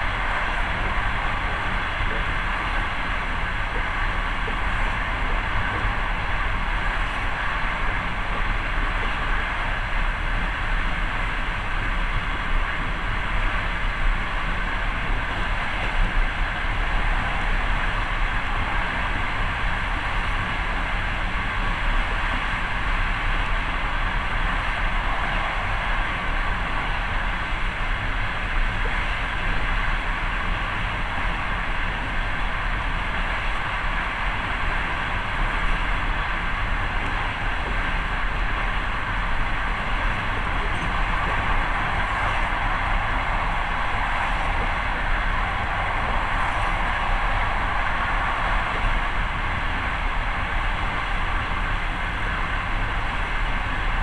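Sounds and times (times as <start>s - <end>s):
train wheels rolling on rails: 20.4s - 54.0s.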